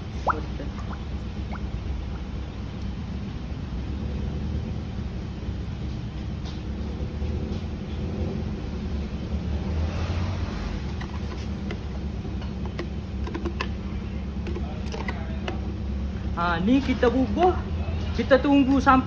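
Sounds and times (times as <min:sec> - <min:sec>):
low hum: 0:00.0 - 0:16.9
ladle scraping plastic jug: 0:10.1 - 0:15.8.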